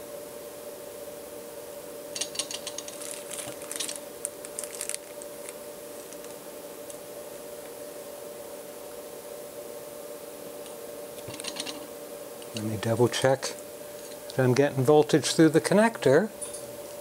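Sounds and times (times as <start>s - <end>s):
steady hum: 0.0s - 17.0s
small metal parts clicking: 2.2s - 4.0s, 11.2s - 11.8s.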